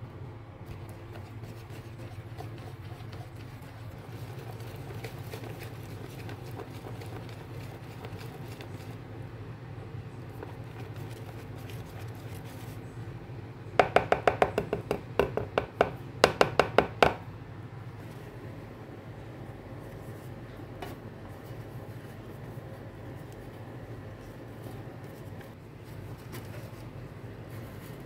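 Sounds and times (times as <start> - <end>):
steady low hum: 0.0 - 28.0
whisk clacking against plastic bowl: 0.7 - 9.0, 10.3 - 12.7, 13.8 - 17.2.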